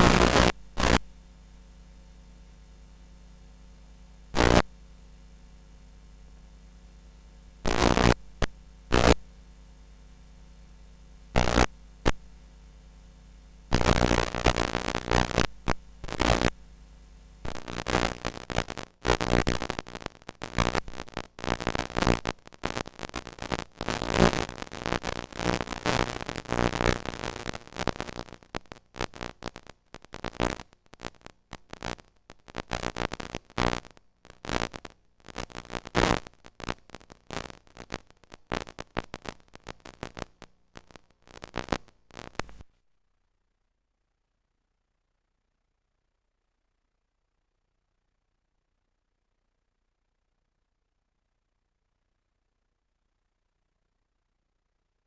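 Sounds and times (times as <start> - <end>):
low steady hum: 0.0 - 19.0
crackling static and hiss: 0.0 - 43.0.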